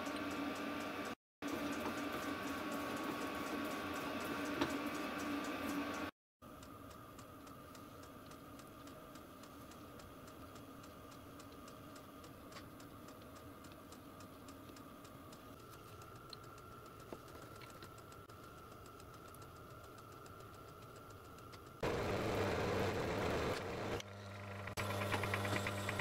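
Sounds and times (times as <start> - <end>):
faint regular ticking: 6.0 - 21.8.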